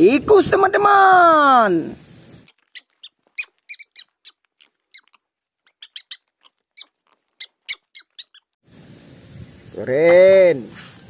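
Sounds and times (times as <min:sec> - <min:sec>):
rats squeaking: 0:02.4 - 0:08.6.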